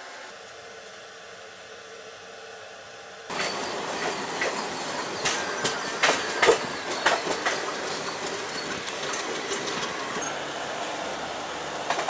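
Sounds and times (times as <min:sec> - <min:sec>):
train wheel and wind rush: 0:00.0 - 0:12.0
wheels clanking over rail joints: 0:03.3 - 0:12.0.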